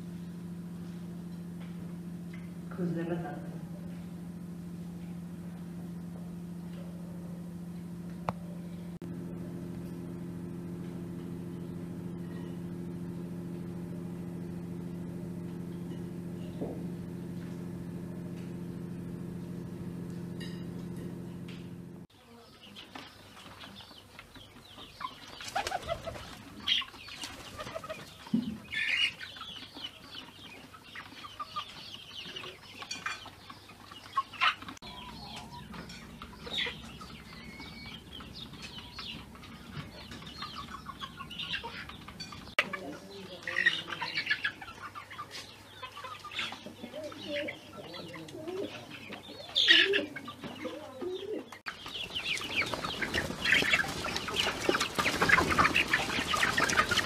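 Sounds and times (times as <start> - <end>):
machine hum: 0.0 - 22.1, 34.1 - 45.1, 51.6 - 57.0
chickens clucking: 10.7 - 57.0
bird calls: 22.2 - 57.0
wing flaps: 25.4 - 26.5, 52.0 - 57.0.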